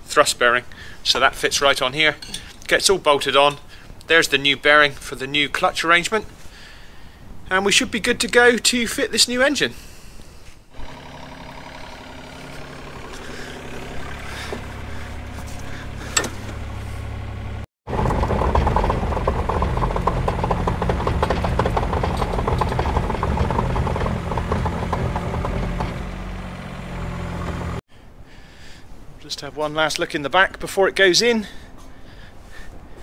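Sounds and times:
diesel engine running: 0:10.7 - 0:27.8.

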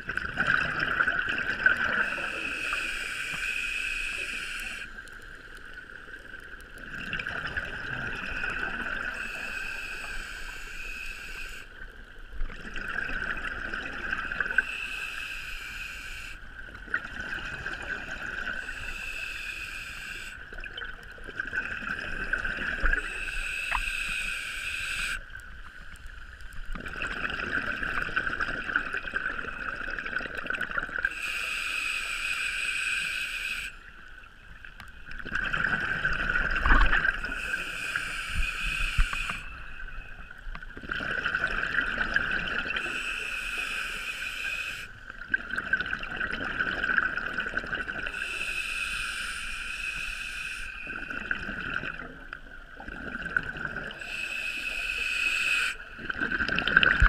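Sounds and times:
diver breathing through regulator: 0:02.0 - 0:05.0, 0:08.3 - 0:11.7, 0:14.6 - 0:16.4, 0:17.3 - 0:20.4, 0:22.8 - 0:25.2, 0:31.1 - 0:33.8, 0:37.1 - 0:39.9, 0:42.8 - 0:45.0, 0:48.0 - 0:51.2, 0:53.9 - 0:55.9.

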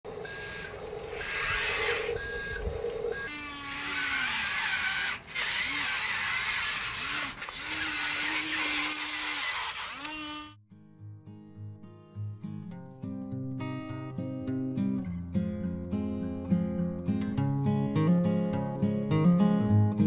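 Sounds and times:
electric motors whining: 0:00.2 - 0:10.6.

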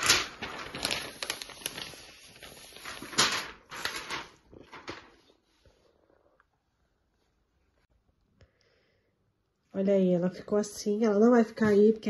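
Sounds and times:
protective wrap rustling: 0:00.0 - 0:04.9.

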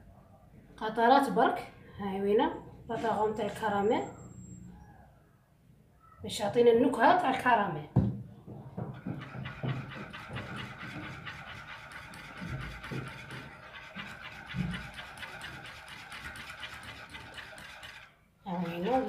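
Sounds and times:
wire whisk scraping metal pan: 0:09.2 - 0:19.0.

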